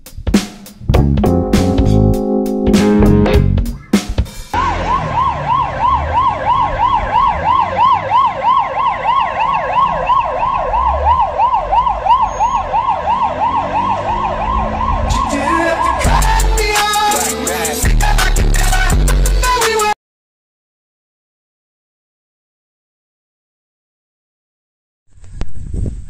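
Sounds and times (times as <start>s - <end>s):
emergency siren yelping: 4.6s - 17.3s.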